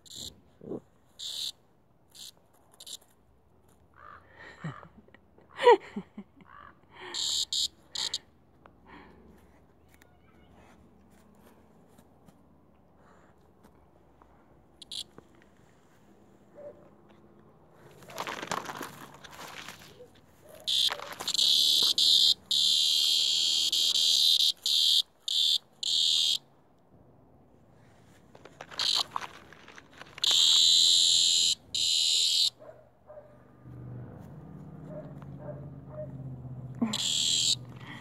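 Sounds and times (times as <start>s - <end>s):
cicada buzzing: 0.0s - 0.3s, 1.2s - 1.5s, 2.1s - 3.0s, 7.2s - 8.2s, 14.8s - 15.0s, 20.7s - 26.4s, 28.8s - 29.1s, 30.2s - 32.5s, 36.9s - 38.0s.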